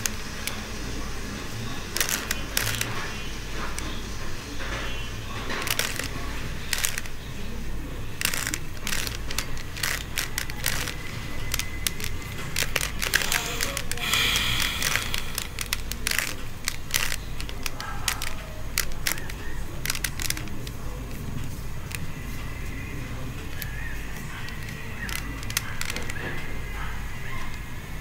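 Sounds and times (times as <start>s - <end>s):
steady low hum: 0.0s - 28.0s
puzzle cube clicking: 1.9s - 3.0s, 5.5s - 7.2s, 8.2s - 20.8s, 23.5s - 26.2s.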